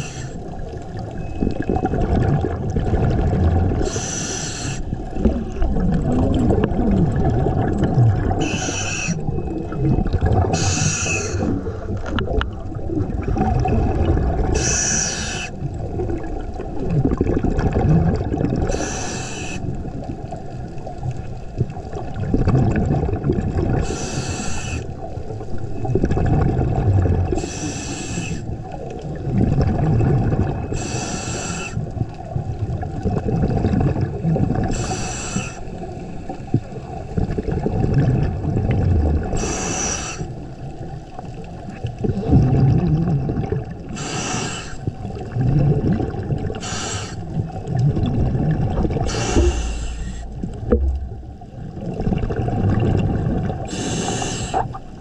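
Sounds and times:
regulator inhale hiss: 0:00.0 - 0:00.4, 0:03.8 - 0:05.0, 0:08.4 - 0:09.2, 0:10.6 - 0:11.5, 0:14.6 - 0:15.6, 0:18.7 - 0:19.7, 0:23.8 - 0:24.9, 0:27.4 - 0:28.5, 0:30.7 - 0:31.8, 0:34.7 - 0:36.8, 0:39.4 - 0:40.3, 0:43.9 - 0:44.9, 0:46.6 - 0:47.3, 0:49.1 - 0:50.4, 0:53.6 - 0:54.8
exhaled air bubbling: 0:00.0 - 0:55.0.

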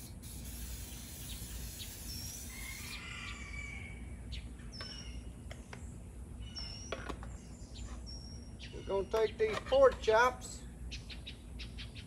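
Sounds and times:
cooking spray hissing: 0:00.0 - 0:03.0
birds chirping: 0:00.4 - 0:03.4, 0:04.1 - 0:12.0.

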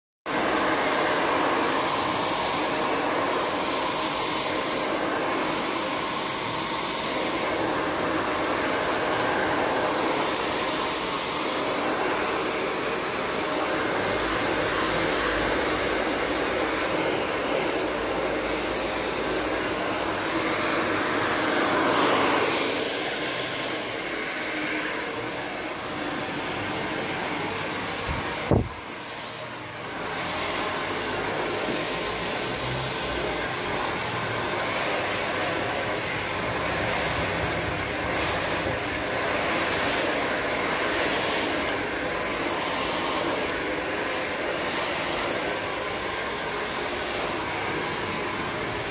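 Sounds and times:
hair dryer blowing: 0:00.2 - 0:48.9.

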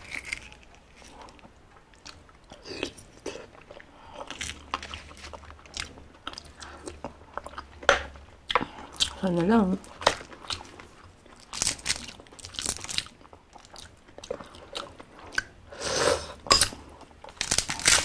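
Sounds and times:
eggshell crackling: 0:00.0 - 0:03.2
biting and mouth sounds: 0:00.0 - 0:09.3.

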